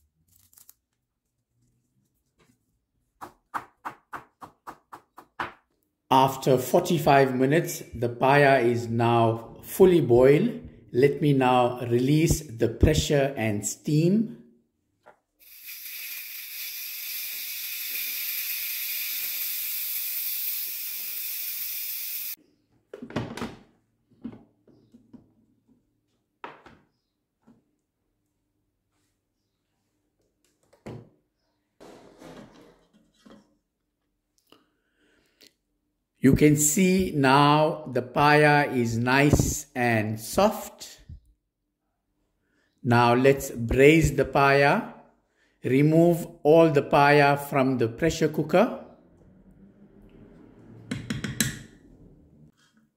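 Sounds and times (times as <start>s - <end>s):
steam valve hissing: 15.4s - 22.4s.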